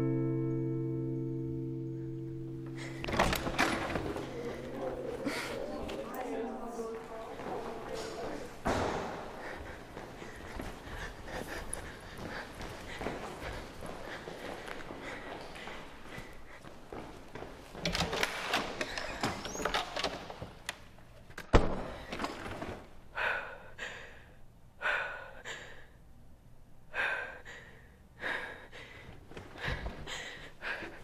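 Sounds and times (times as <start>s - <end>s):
person gasping breaths: 2.6s - 6.0s, 9.0s - 16.8s, 23.1s - 26.1s, 26.9s - 31.0s
loud thud: 8.6s - 9.4s.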